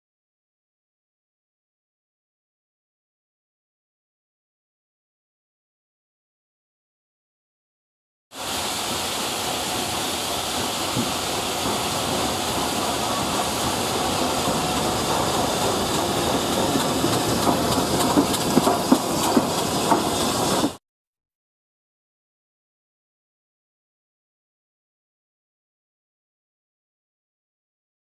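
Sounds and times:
steam locomotive hiss: 0:08.4 - 0:20.8
wheels clicking: 0:10.4 - 0:20.8.

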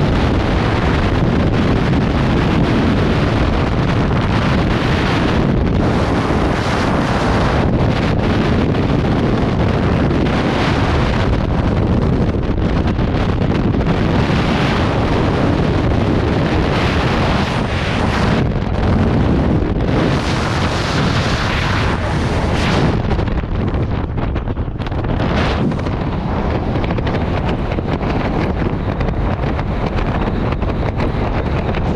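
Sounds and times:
wind buffeting microphone: 0:00.0 - 0:31.9.

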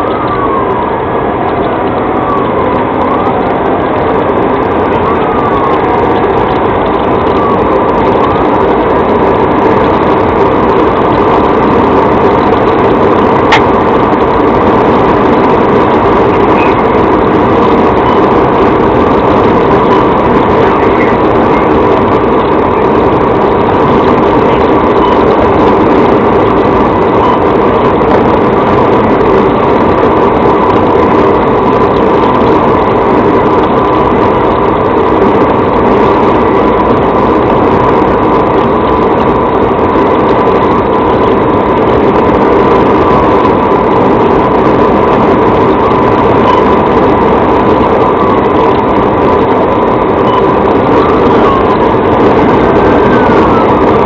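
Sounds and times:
car interior road and wind noise: 0:00.0 - 0:54.0
steady tone: 0:00.0 - 0:54.0.

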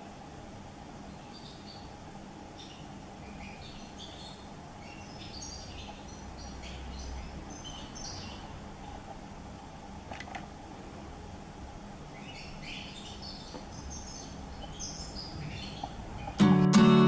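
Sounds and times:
goldfinch chirping: 0:01.1 - 0:01.9, 0:02.6 - 0:08.5, 0:12.1 - 0:16.4
acoustic guitar music: 0:16.2 - 0:17.0.

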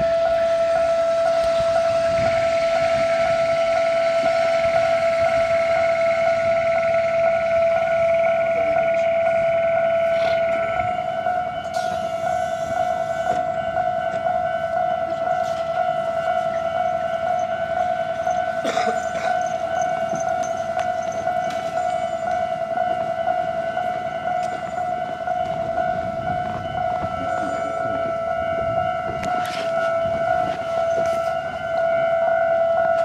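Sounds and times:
electric train high-pitched whine: 0:00.0 - 0:33.0.

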